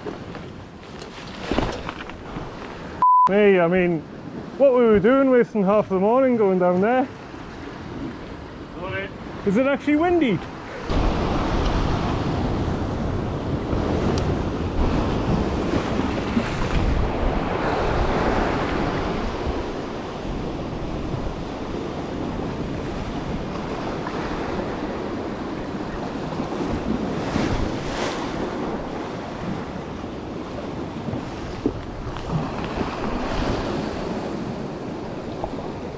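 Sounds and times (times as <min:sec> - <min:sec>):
surf breaking over rocks: 0:08.9 - 0:30.0
wind buffeting microphone: 0:10.4 - 0:35.9.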